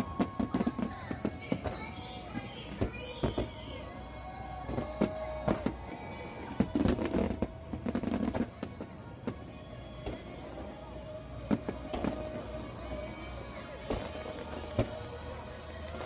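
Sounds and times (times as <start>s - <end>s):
fireworks bursting: 0.0s - 16.0s
background music: 9.7s - 16.0s.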